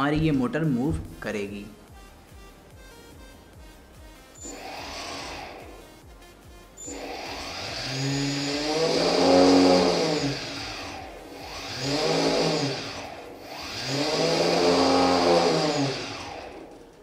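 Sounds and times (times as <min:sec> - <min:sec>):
drone motor whine rising and falling: 0:04.4 - 0:06.2, 0:06.8 - 0:17.0.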